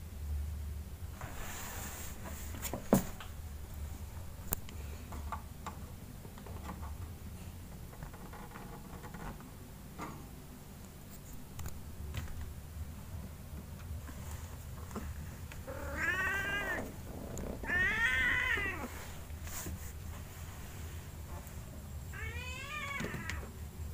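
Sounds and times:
low steady hum: 0.0s - 23.9s
kitten meowing: 15.7s - 18.9s.

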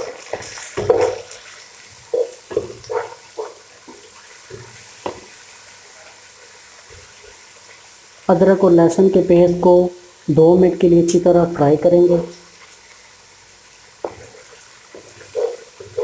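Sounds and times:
onions sizzling in oil: 0.0s - 16.0s
wooden spatula scraping pot: 2.0s - 5.2s, 14.0s - 16.0s.

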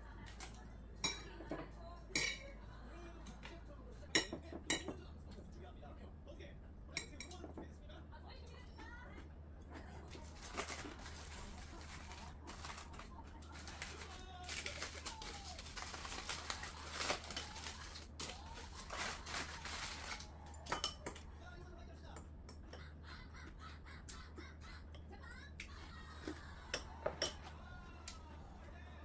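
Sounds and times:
aluminium foil crinkling: 10.1s - 20.6s.

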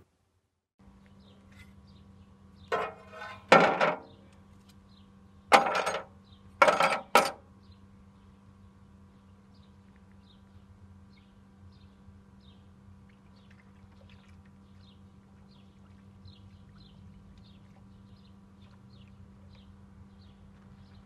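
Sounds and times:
metal blades clanking on tray: 2.7s - 4.1s, 5.5s - 7.4s.

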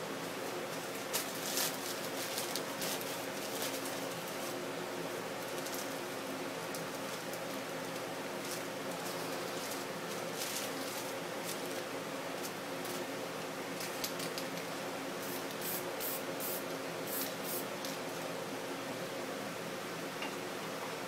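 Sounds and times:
aerosol spray can hissing: 15.2s - 17.7s.

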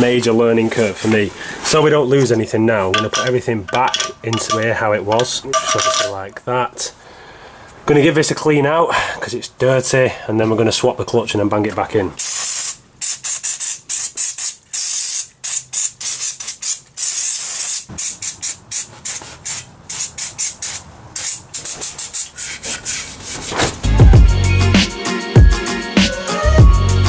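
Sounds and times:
aerosol spray hissing: 12.2s - 22.4s
background music: 23.8s - 27.0s.

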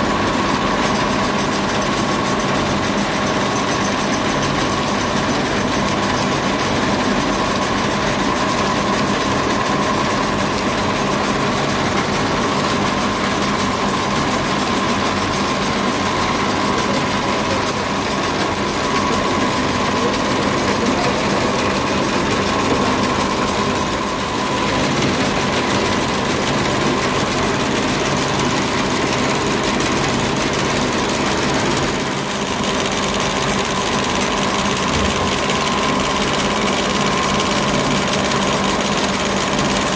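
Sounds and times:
high machine whine: 0.0s - 39.9s
rope-twisting machine whirring: 0.6s - 39.9s.

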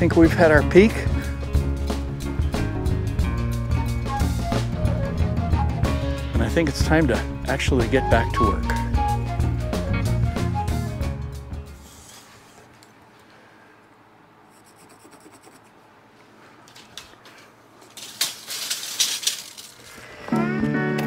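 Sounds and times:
acoustic guitar music: 0.0s - 10.4s, 20.3s - 21.0s
tape measure clicking and rattling: 16.7s - 20.1s.

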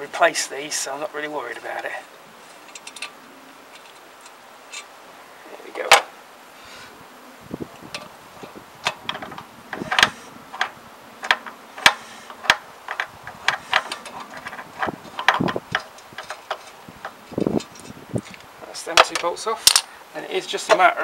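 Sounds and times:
spanner clicking on bolts: 8.8s - 18.4s.

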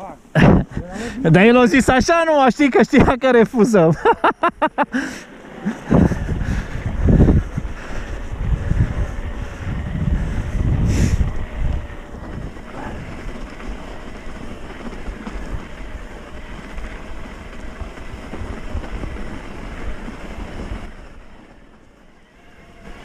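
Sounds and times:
bike tyres rumbling on trail: 0.4s - 23.0s
wind rushing over microphone: 5.7s - 21.8s.

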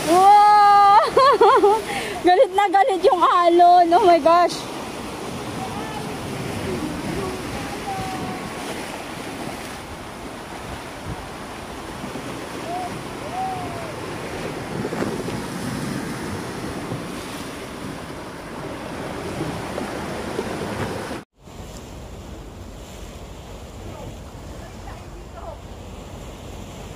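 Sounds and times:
sea surf breaking against rocks: 0.0s - 26.9s
wind buffeting microphone: 1.8s - 21.2s.

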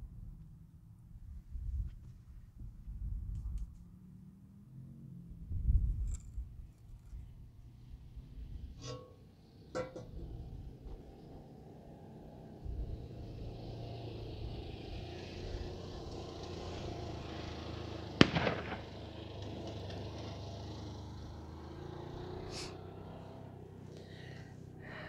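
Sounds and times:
wood fire burning: 15.2s - 21.6s
fire popping and crackling: 18.1s - 20.3s.

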